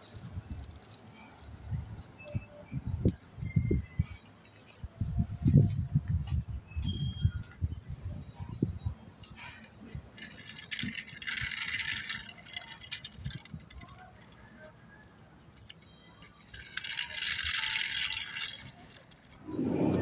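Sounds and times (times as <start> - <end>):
toy car wheels rolling on concrete: 0.0 - 1.8, 9.2 - 20.0.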